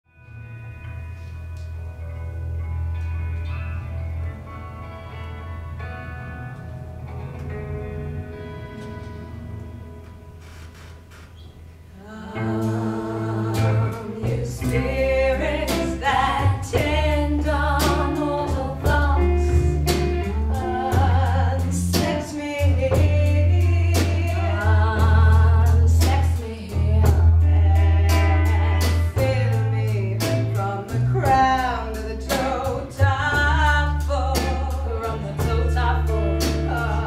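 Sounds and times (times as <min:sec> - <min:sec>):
bass low notes: 0:00.2 - 0:37.0
women singing: 0:12.0 - 0:37.0.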